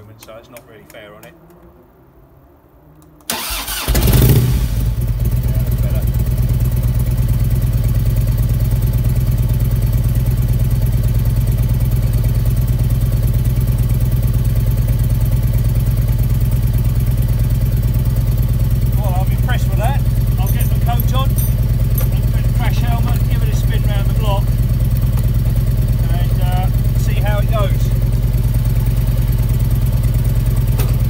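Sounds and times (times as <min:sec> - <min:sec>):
electric starter cranking: 0:03.2 - 0:04.8
motorcycle engine idling: 0:04.3 - 0:31.0.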